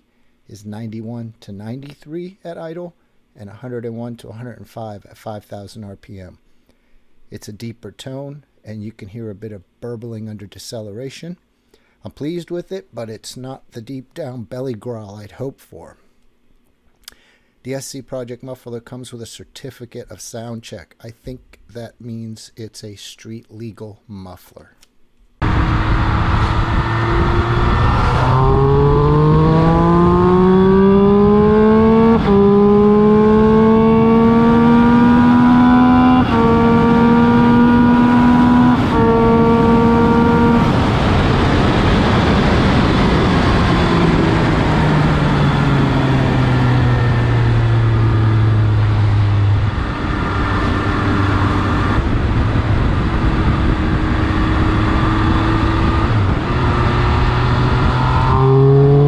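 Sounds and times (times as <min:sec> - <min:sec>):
wind noise: 0:25.4 - 0:34.2, 0:36.0 - 0:47.3, 0:48.0 - 0:59.0
motorcycle engine accelerating: 0:25.4 - 0:59.0.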